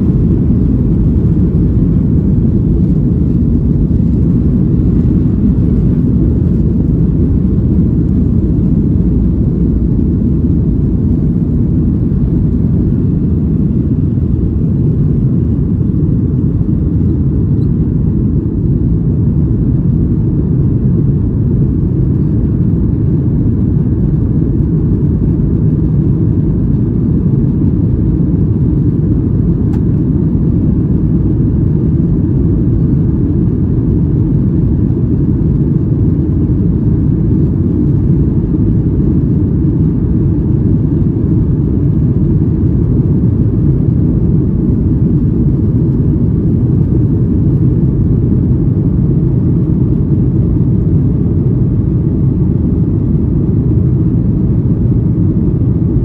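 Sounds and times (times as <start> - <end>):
airflow over fuselage: 0.0 - 56.0
jet engines rumbling: 0.0 - 56.0.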